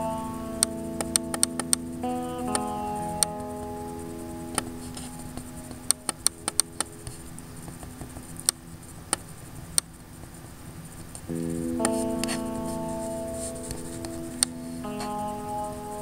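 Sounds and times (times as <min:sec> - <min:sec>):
soft acoustic guitar music: 0:00.0 - 0:07.7, 0:11.3 - 0:16.0
mouse buttons clicking: 0:01.0 - 0:01.8, 0:04.5 - 0:09.9, 0:11.8 - 0:12.4.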